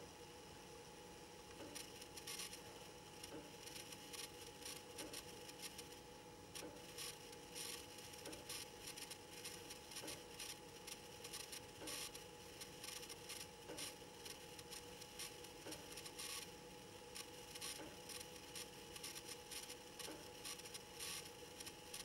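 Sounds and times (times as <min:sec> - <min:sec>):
faint steady whine: 0:00.0 - 0:22.0.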